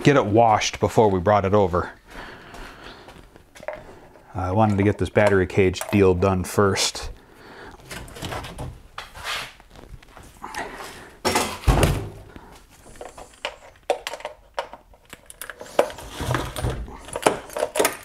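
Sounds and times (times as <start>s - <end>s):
cables and hardware clinking: 3.6s - 7.0s, 12.8s - 18.0s.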